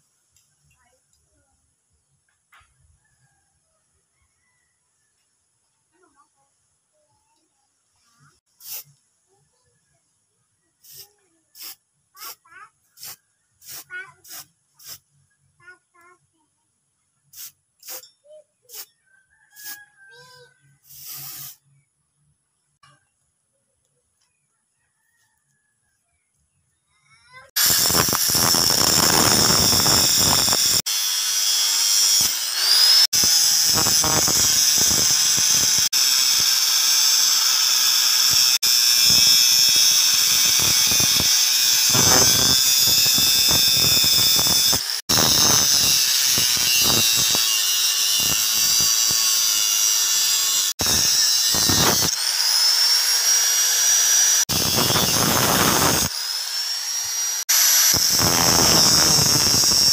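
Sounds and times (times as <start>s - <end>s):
angle grinder cutting steel: 27.6s - 59.9s.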